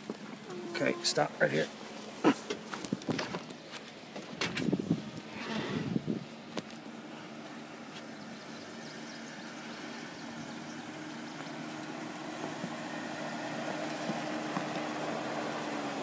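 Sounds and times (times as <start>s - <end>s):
vehicle engine running: 0.0s - 16.0s
stones clicking under tyres: 2.4s - 4.8s, 13.5s - 15.3s.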